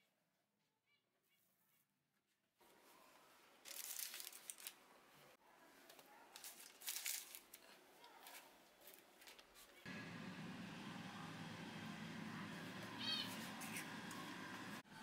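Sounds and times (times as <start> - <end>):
parchment paper crinkling: 3.6 - 4.8, 5.8 - 9.8.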